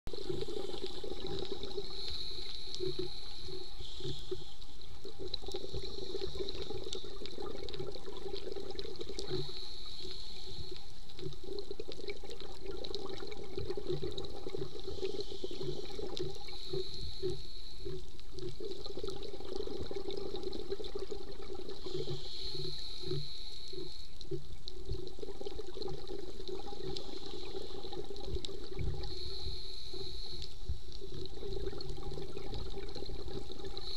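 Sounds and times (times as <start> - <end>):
exhaled bubbles: 0.1 - 33.9
muffled underwater hiss: 0.1 - 33.9
diver regulator breaths: 0.2 - 7.5, 9.1 - 11.3, 13.6 - 18.5, 21.6 - 24.5, 26.4 - 33.9.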